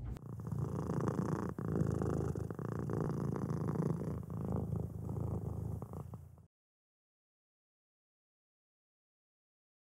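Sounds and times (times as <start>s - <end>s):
cat purring: 0.0s - 6.5s.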